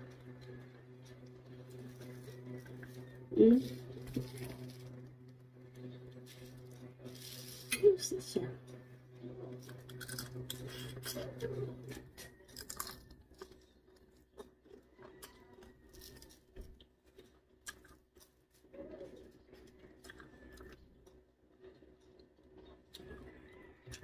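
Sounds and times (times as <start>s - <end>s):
low hum: 0.0s - 24.0s
chewing and mouth noises: 8.6s - 24.0s
shrimp shells peeled by hand: 12.1s - 14.6s.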